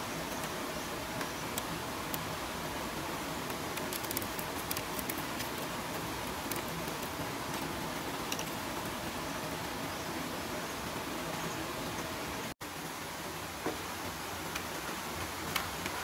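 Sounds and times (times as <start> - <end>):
steady hiss: 0.0 - 16.0
bamboo strip rustling and clicking: 3.5 - 8.6.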